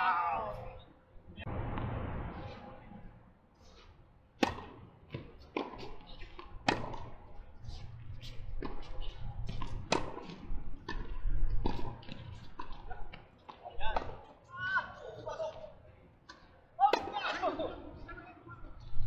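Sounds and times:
tennis ball bouncing on court: 0:04.4 - 0:07.2, 0:08.6 - 0:14.3
tennis racket hitting ball: 0:04.4 - 0:07.2, 0:09.4 - 0:12.8.

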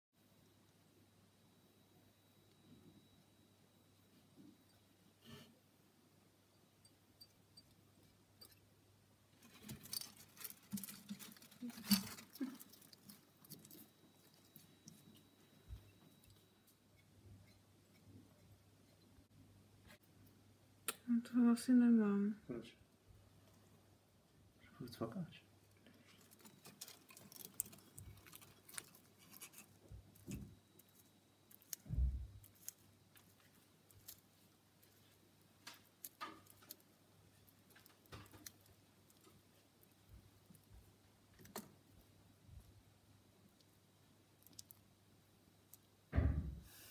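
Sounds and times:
lizard feeding from plastic cup: 0:09.4 - 0:16.4, 0:25.8 - 0:39.3.

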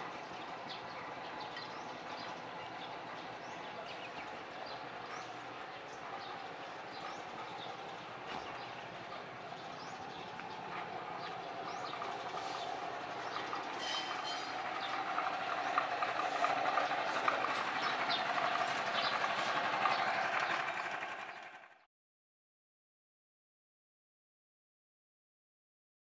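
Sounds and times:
steady mechanical running noise: 0:00.0 - 0:21.9.

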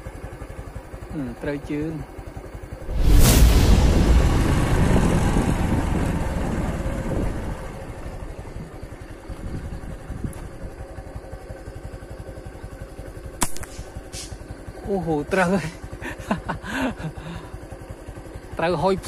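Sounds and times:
motorcycle engine idling: 0:00.0 - 0:02.9, 0:05.0 - 0:19.0
sharp click: 0:13.4 - 0:14.4.

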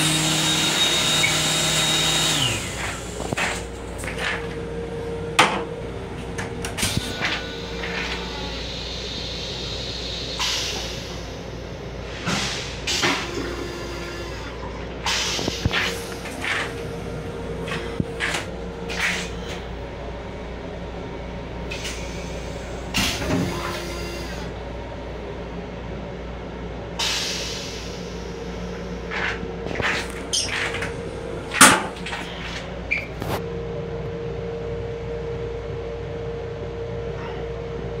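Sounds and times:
railcar running hum: 0:00.0 - 0:38.0.

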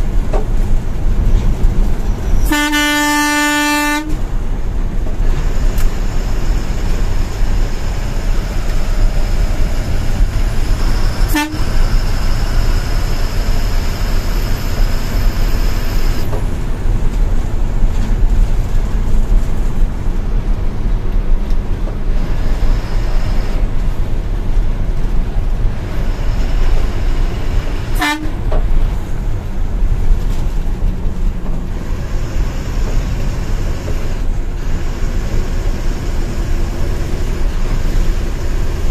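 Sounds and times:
bus engine and road rumble: 0:00.0 - 0:38.9
short horn toots: 0:02.4 - 0:04.2, 0:10.7 - 0:12.3, 0:28.0 - 0:28.4.

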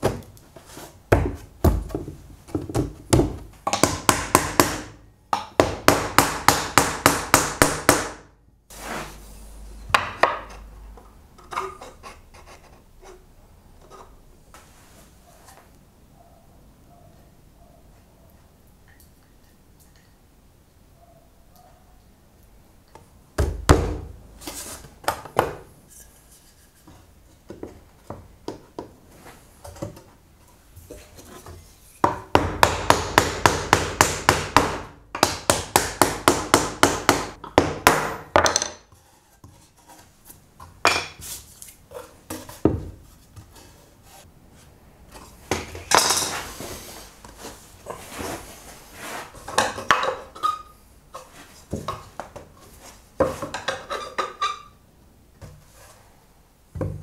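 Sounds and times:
hand tools knocking wood: 0:32.0 - 0:38.8.

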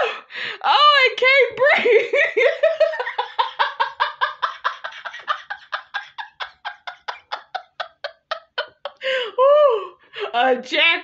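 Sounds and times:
woman laughing hard: 0:01.6 - 0:09.8.

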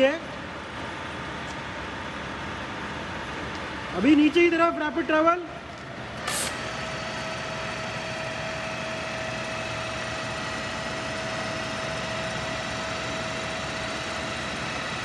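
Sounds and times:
milling machine whirring: 0:05.7 - 0:15.0.

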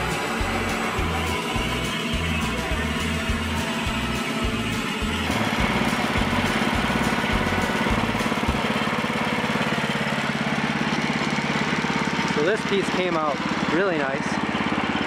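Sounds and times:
background music: 0:00.0 - 0:08.6
band saw blade cutting log: 0:00.0 - 0:14.6
small gas engine running: 0:00.0 - 0:15.0.

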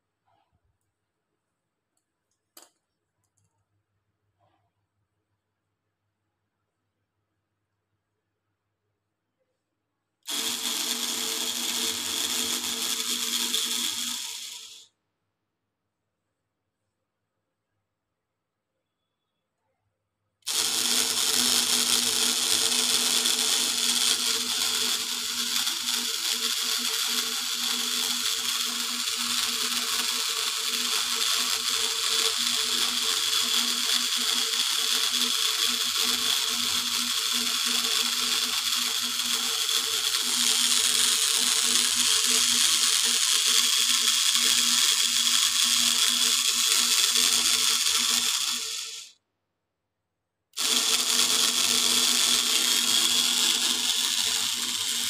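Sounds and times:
motor hum: 0:10.3 - 0:14.9, 0:20.4 - 0:49.1, 0:50.6 - 0:55.0.

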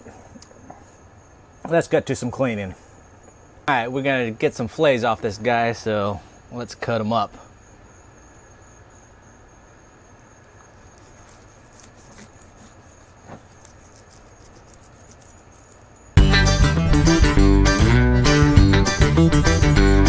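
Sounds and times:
knife cutting fish skin: 0:10.9 - 0:15.8
loud guitar music: 0:16.2 - 0:20.0.

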